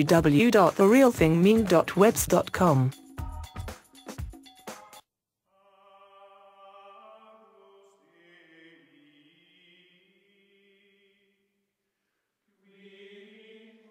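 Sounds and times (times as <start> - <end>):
chant-like chorus of voices: 5.6 - 11.0, 12.6 - 13.9.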